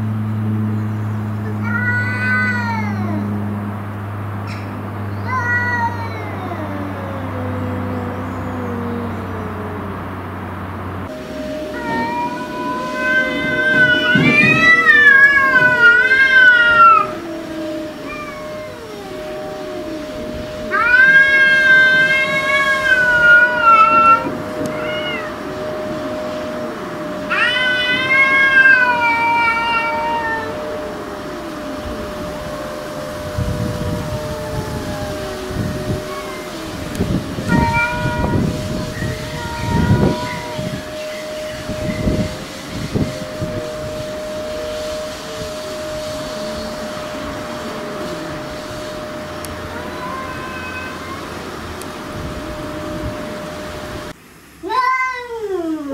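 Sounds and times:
low sliding moans: 0.0s - 54.2s
background hum: 0.0s - 55.9s
cats yowling: 1.4s - 3.6s, 4.5s - 10.2s, 11.0s - 55.9s
steady low tone: 6.2s - 50.1s, 50.9s - 54.2s
faint higher call: 11.0s - 54.2s.

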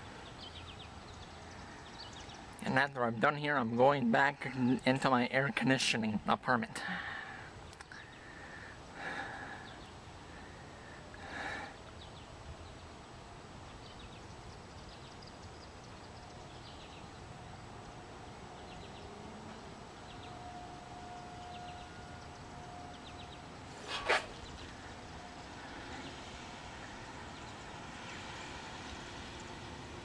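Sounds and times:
distant warning siren: 9.9s - 30.0s.

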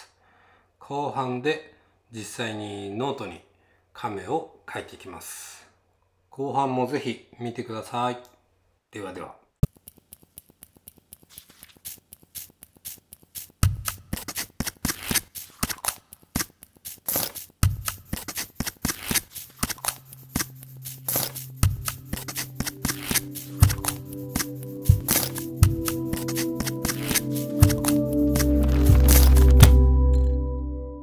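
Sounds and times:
electronic music with scratchy clicks: 9.6s - 29.9s
held chord notes: 20.6s - 31.0s.

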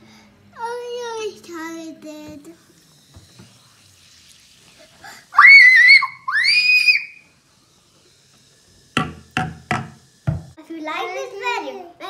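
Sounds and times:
child screaming excitedly: 5.3s - 7.2s.

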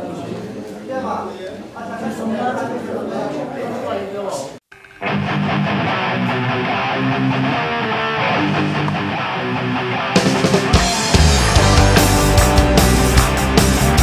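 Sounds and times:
electric guitar riff: 4.7s - 14.0s
bass guitar: 5.0s - 14.0s
drums and cymbals: 10.2s - 14.0s.

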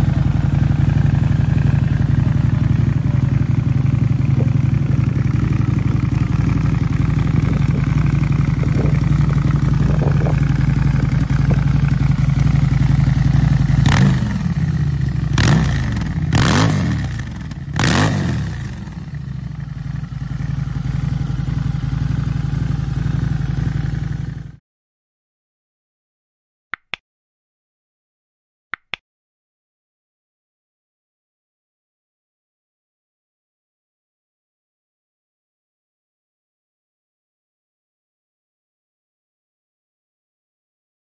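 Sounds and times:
motorcycle throttle blips: 0.0s - 18.9s
motorcycle engine idling: 0.0s - 24.6s.

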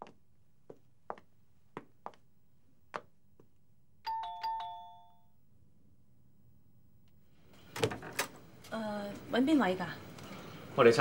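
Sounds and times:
two-tone doorbell chime: 4.1s - 5.3s.

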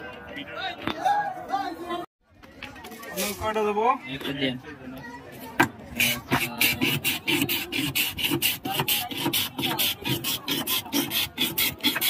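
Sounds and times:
ice shaving rasping strokes: 6.0s - 12.0s.

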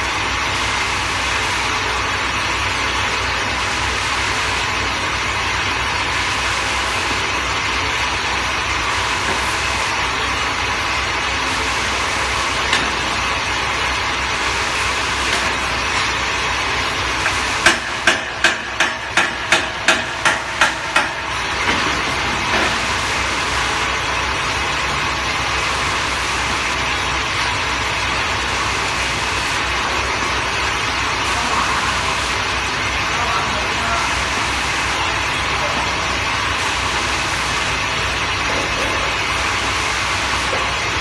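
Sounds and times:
sharp knocks: 17.6s - 21.8s.

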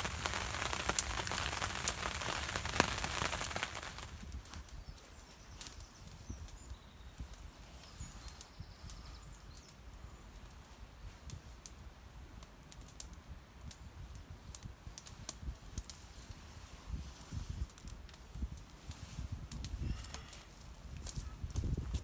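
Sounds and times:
campfire crackling and popping: 0.0s - 5.0s, 10.4s - 22.0s
low wind rumble: 0.0s - 12.5s, 13.2s - 22.0s.

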